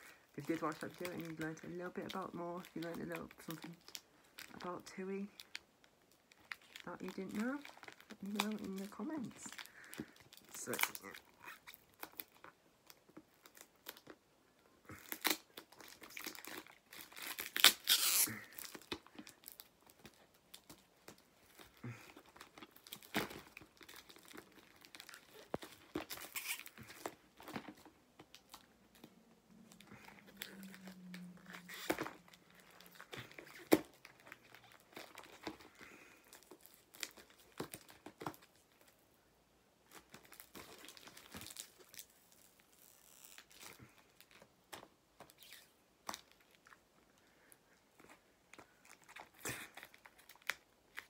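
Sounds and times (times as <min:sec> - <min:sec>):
paper packaging crumpling and tearing: 0:00.0 - 0:14.2, 0:14.8 - 0:39.0, 0:39.9 - 0:46.8, 0:47.4 - 0:51.0.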